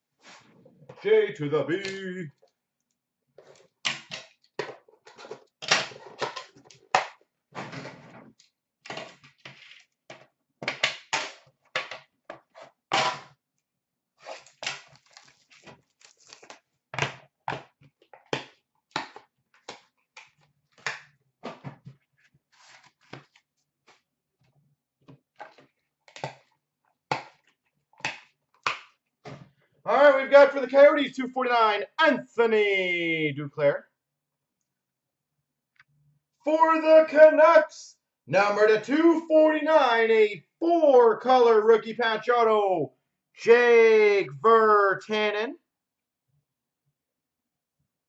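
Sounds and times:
foil packs crinkling: 14.3 - 16.6.

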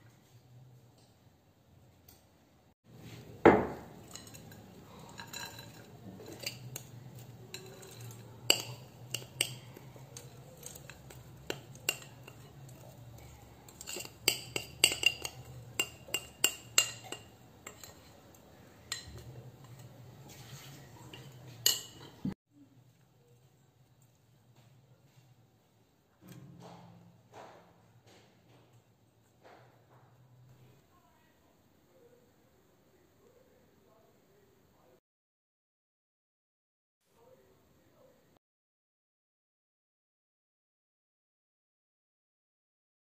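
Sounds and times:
metal spoon clinking on glass: 3.9 - 18.1, 21.0 - 22.2.

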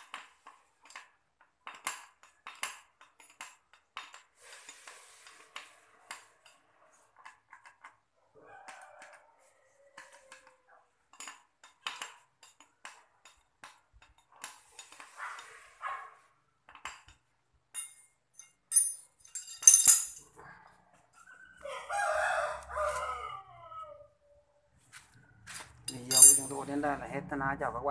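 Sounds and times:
metal tool clinking on metal: 17.7 - 20.2, 25.9 - 26.8.

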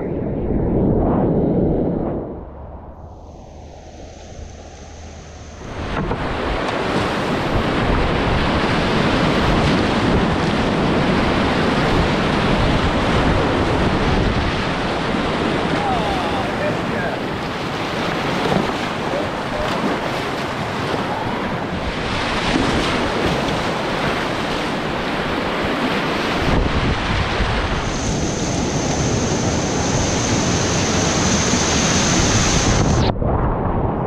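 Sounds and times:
wind buffeting microphone: 0.0 - 34.0
thin high whine: 1.8 - 6.4
whitewater rapids rushing: 5.6 - 32.9.

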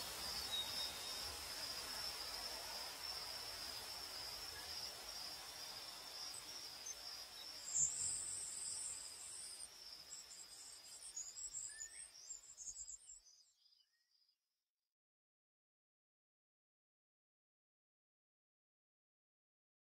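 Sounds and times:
crickets trilling: 0.0 - 13.4.

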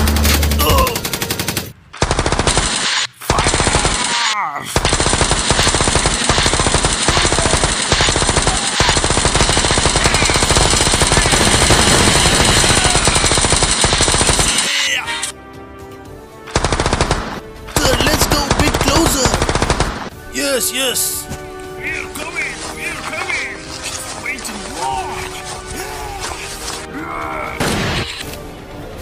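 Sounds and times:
automatic gunfire: 1.0 - 14.8, 16.5 - 20.1.

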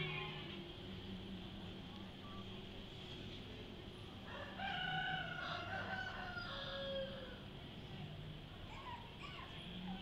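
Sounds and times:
rooster crowing: 4.3 - 7.4.

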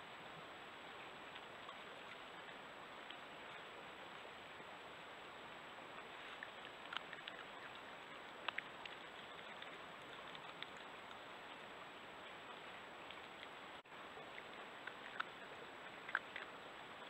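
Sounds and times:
microphone hiss: 0.0 - 17.0
faint sharp clicks: 6.2 - 11.3, 14.3 - 17.0.

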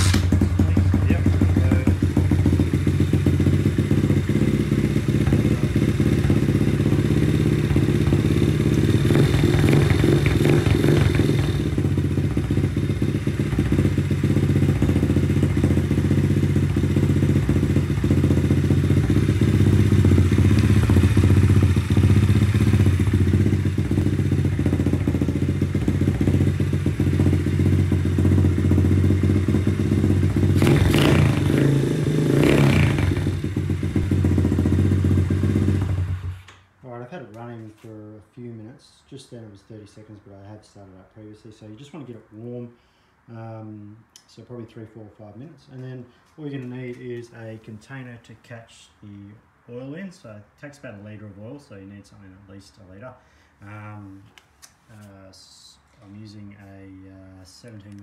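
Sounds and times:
pit bike engine idling: 0.0 - 36.5.

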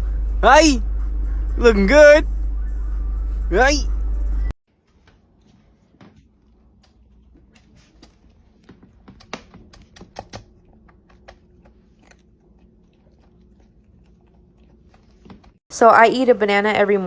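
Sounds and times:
cat crunching dry kibble: 9.7 - 15.2.

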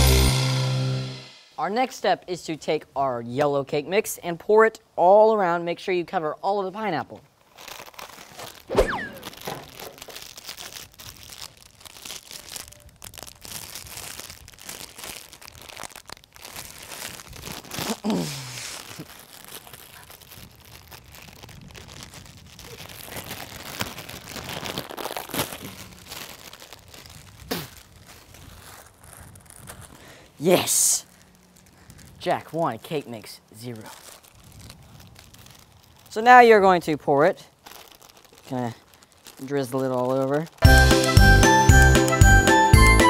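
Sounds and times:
plastic bag crinkling and tearing: 7.2 - 40.8.

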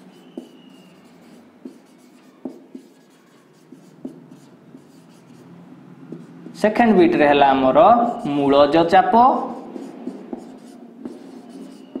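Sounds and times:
marker squeak: 0.0 - 5.5, 8.0 - 8.6, 9.4 - 12.0
marker writing on whiteboard: 0.0 - 12.0.

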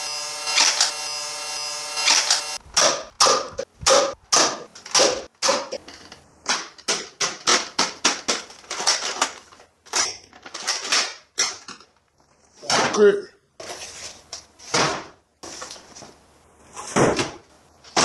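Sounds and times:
toy blaster mechanism clacking: 0.5 - 1.0, 2.0 - 2.6.

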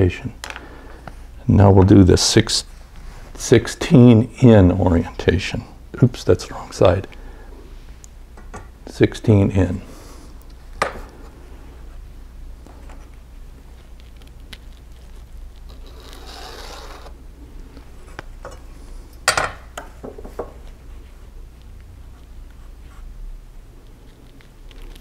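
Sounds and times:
pencil scraping across paper: 15.7 - 17.2.

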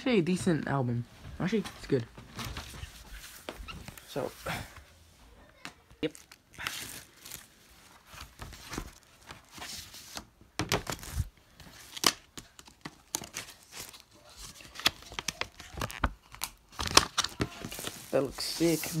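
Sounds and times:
packaging tearing and crinkling: 10.8 - 19.0.

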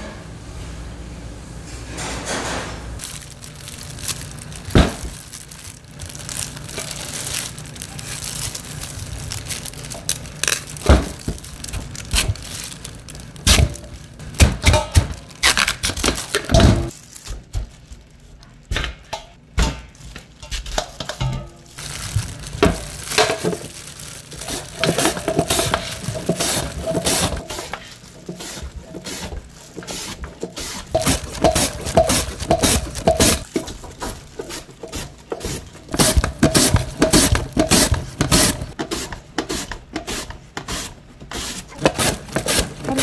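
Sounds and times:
kitchen utensils clattering: 20.4 - 38.9.

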